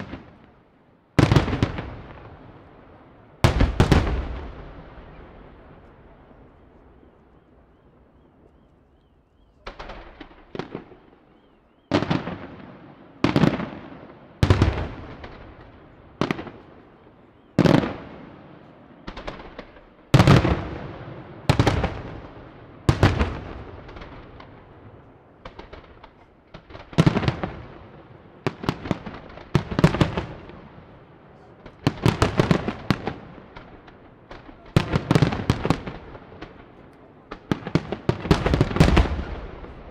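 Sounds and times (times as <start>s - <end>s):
firework shells booming: 9.6s - 39.9s.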